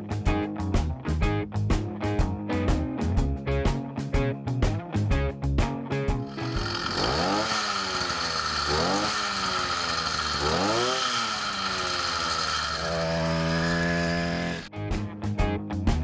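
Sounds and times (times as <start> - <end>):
small two-stroke engine revving: 6.3 - 14.7.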